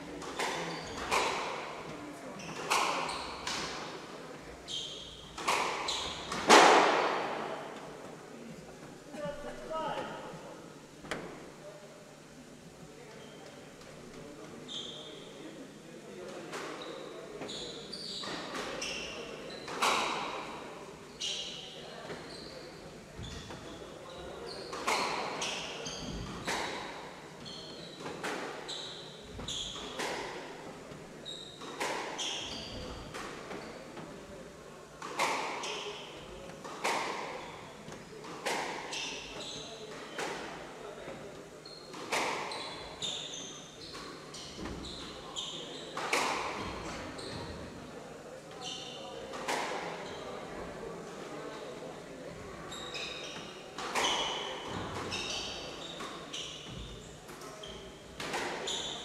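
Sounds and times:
shoes squeaking on wooden floor: 0.2s - 3.7s, 4.7s - 6.6s, 16.8s - 20.0s, 21.1s - 26.7s, 27.4s - 30.1s, 31.0s - 34.0s, 38.4s - 40.3s, 41.6s - 47.7s, 48.6s - 49.0s, 52.7s - 58.0s, 58.6s - 59.0s
squash ball hitting rackets and walls: 4.8s - 7.6s, 46.0s - 47.4s.

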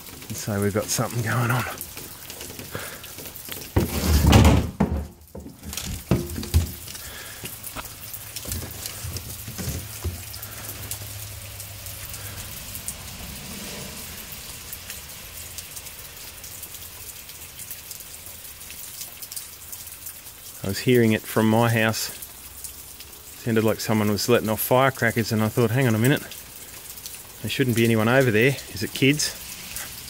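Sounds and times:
steady rain falling: 0.0s - 30.0s
heavy thump: 3.8s - 5.2s
sharp knocks: 3.8s - 6.8s.

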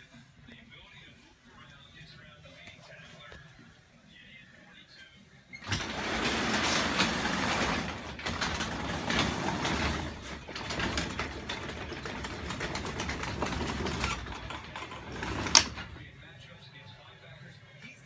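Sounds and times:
garage door opener rattling: 5.6s - 16.0s.

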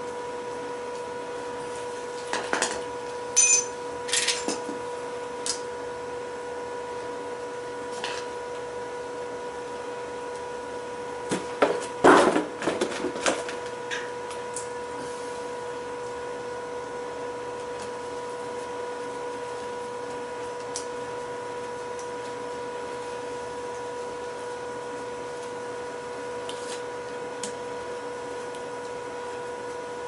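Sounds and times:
steady hum: 0.0s - 30.0s
metal tools clinking and knocking: 3.4s - 4.4s.

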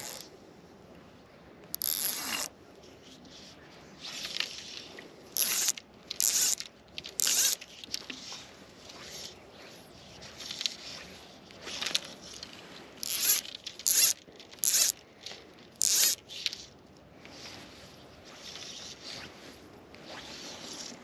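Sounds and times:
fly line zipping through guides: 0.0s - 0.2s, 1.7s - 2.5s, 5.4s - 9.8s, 13.0s - 15.0s, 15.8s - 16.7s, 20.0s - 21.0s.

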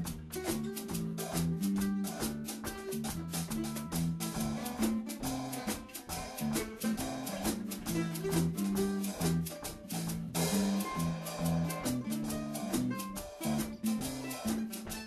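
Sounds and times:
upbeat instrumental music: 0.0s - 15.0s.

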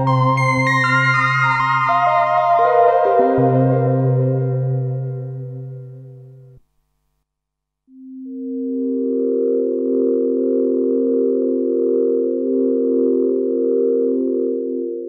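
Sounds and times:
sustained synthesizer pad chord: 0.0s - 6.6s, 8.0s - 15.0s
synthesizer patch tail: 0.0s - 6.6s.

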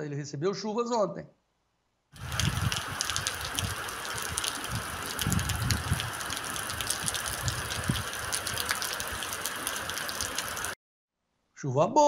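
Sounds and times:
low rumbles: 2.2s - 8.8s
heavy rain on concrete: 2.2s - 10.8s.

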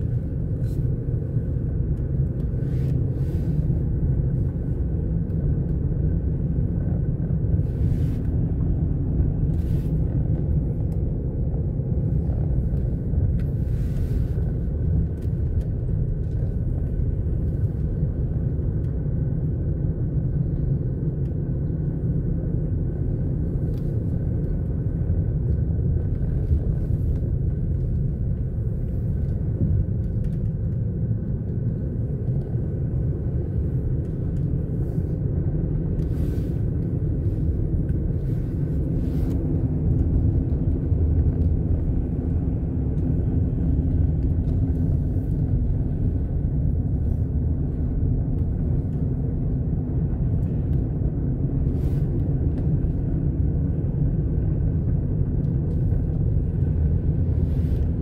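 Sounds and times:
car engine and tyres rumbling: 0.0s - 58.0s.

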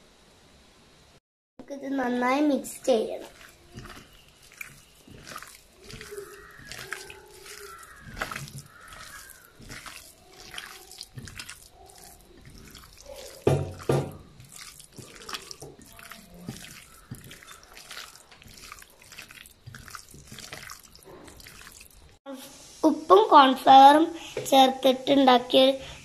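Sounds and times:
wet squelches of hand in marinade: 2.7s - 22.2s.

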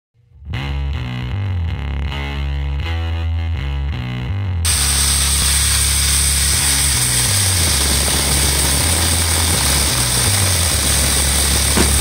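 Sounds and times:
background music with bass: 0.2s - 12.0s
chainsaw cutting wood: 4.7s - 12.0s.

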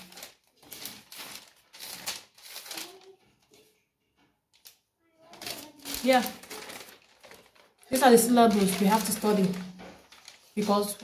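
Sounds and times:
notebook pages flipping: 0.0s - 3.1s, 5.4s - 11.0s.

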